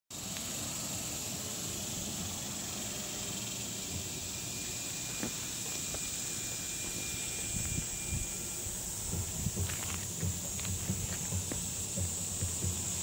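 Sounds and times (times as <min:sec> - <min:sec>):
high-pitched insect buzzing: 0:00.2 - 0:13.0.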